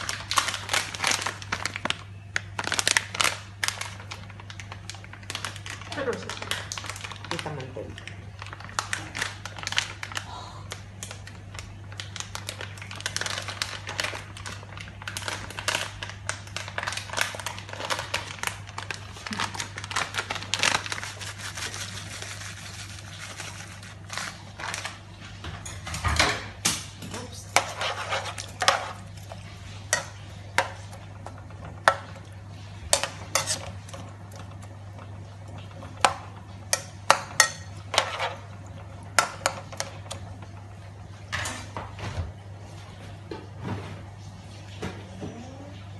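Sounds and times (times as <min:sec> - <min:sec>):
spatula scraping metal pan: 0:27.6 - 0:28.9.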